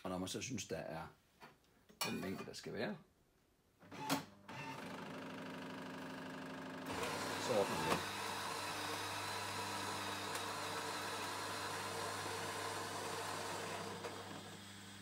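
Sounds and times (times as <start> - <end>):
electric motor hum: 4.5 - 15.0.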